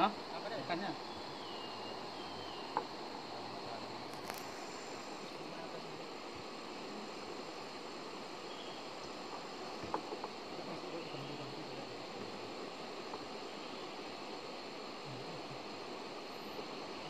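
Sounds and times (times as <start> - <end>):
high-pitched insect drone: 0.0 - 17.0
riverside hiss: 0.0 - 17.0.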